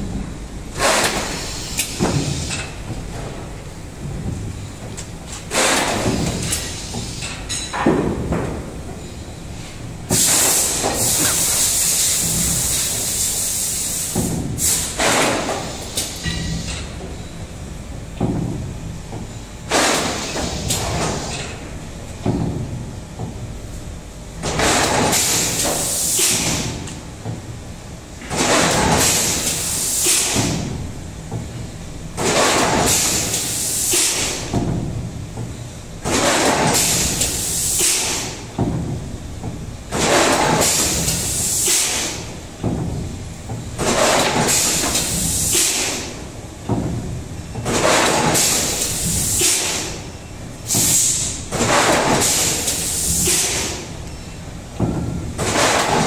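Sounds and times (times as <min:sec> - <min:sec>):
low mechanical rumble: 0:00.0 - 0:07.5
machine hissing bursts: 0:00.7 - 0:02.8, 0:10.1 - 0:16.8, 0:24.6 - 0:26.8, 0:28.3 - 0:30.6, 0:32.2 - 0:34.5, 0:36.1 - 0:38.4, 0:40.0 - 0:42.3, 0:43.9 - 0:46.2, 0:47.9 - 0:53.9.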